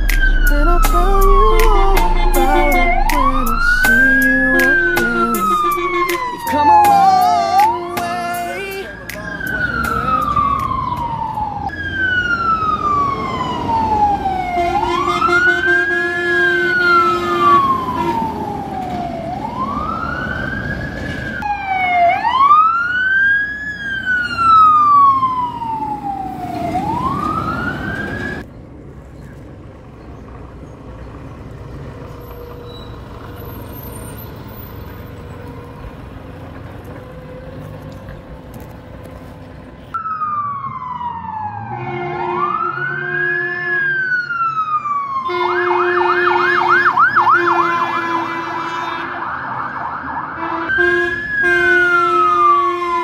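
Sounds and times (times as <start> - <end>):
steady horn tone: 0.0 - 9.0, 14.5 - 18.4, 41.8 - 44.0, 47.3 - 49.3, 50.4 - 53.0
siren wailing: 0.0 - 28.5, 39.9 - 53.0
street background noise: 0.0 - 53.0.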